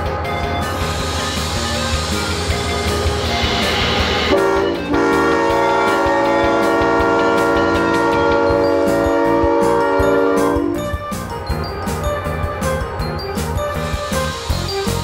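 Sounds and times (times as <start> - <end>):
locomotive air horn blasts: 1.2 - 11.3.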